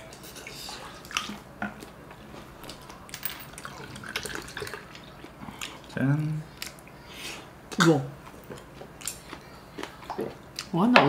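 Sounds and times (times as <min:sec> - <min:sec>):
chewing: 0:00.8 - 0:07.1, 0:07.7 - 0:10.7
liquid pouring into a glass: 0:03.3 - 0:05.2.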